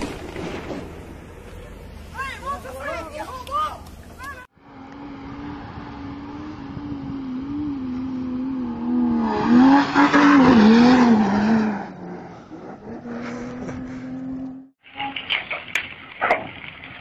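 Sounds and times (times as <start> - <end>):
engine running at high revs: 4.6 - 14.7.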